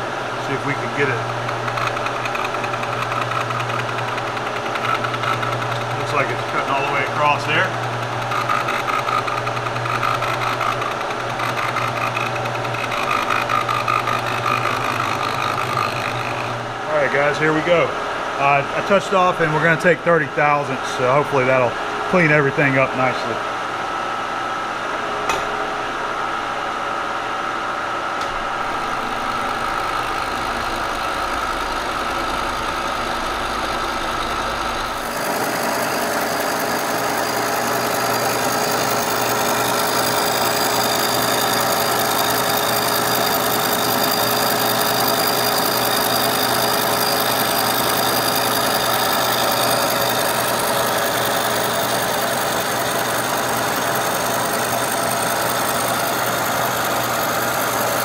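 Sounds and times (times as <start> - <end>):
milling machine cutting metal: 0.0 - 16.7, 28.5 - 58.0.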